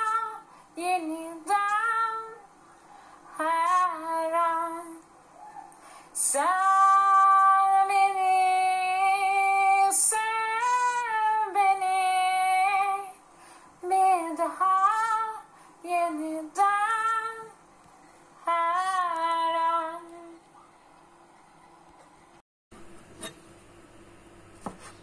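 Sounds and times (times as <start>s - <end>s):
woman singing unaccompanied: 0.0s - 2.4s, 3.4s - 5.1s, 6.2s - 13.2s, 13.8s - 17.6s, 18.4s - 20.5s.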